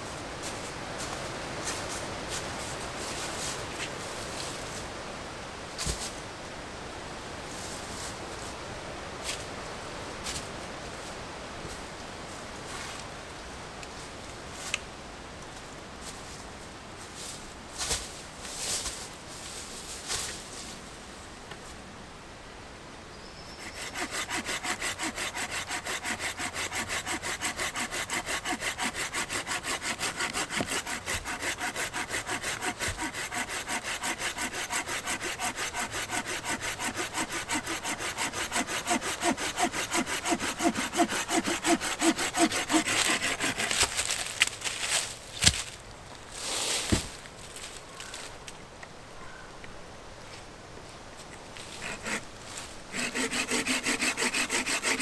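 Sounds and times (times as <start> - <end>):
hand saw cutting log: 23.6 - 45.6, 51.7 - 52.3, 52.9 - 55.0.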